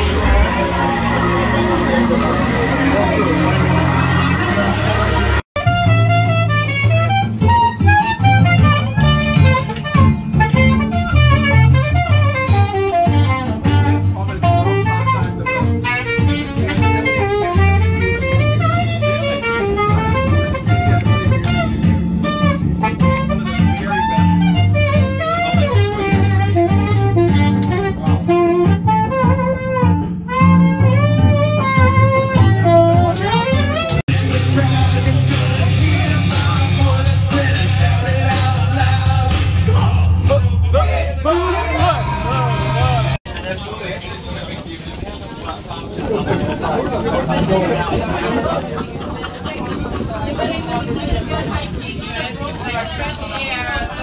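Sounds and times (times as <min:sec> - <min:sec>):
saxophone jazzy melody: 0:00.0 - 0:43.2
steady bass line: 0:00.0 - 0:43.2
guitar: 0:00.0 - 0:43.3.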